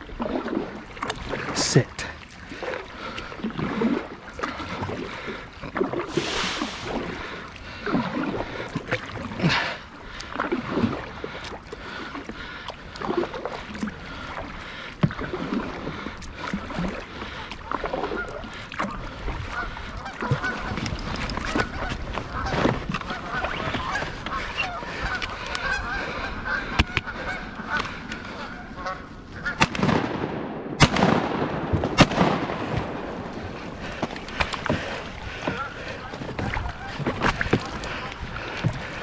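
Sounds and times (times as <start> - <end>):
geese honking: 18.1 - 18.5, 19.5 - 20.8, 21.5 - 29.6, 34.7 - 38.1
sharp crack: 29.6 - 33.1.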